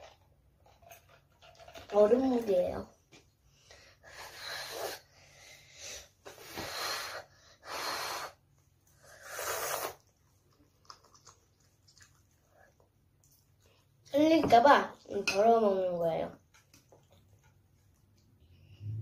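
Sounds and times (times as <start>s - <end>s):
child slurping noodles: 4.0s - 5.2s, 5.8s - 10.2s.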